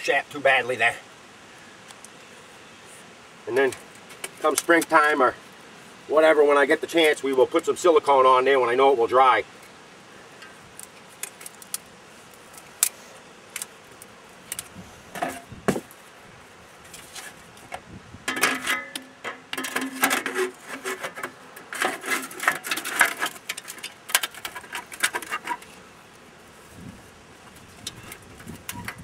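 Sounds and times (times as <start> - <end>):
scraping and rustling of padding: 10.4 - 29.0.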